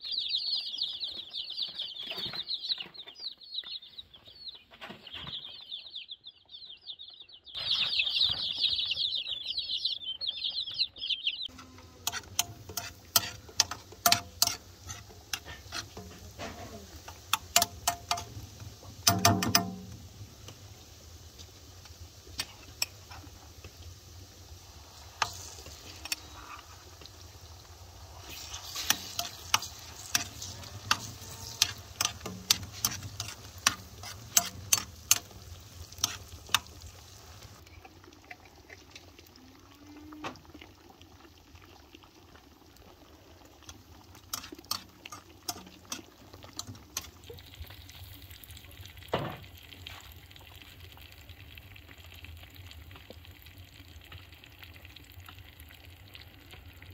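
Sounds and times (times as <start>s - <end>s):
low sizzle: 0.0s - 2.8s, 5.4s - 56.9s
metal spoon clinking on pan: 12.0s - 16.2s, 17.3s - 18.4s, 19.0s - 20.0s, 28.8s - 35.4s, 44.3s - 47.1s.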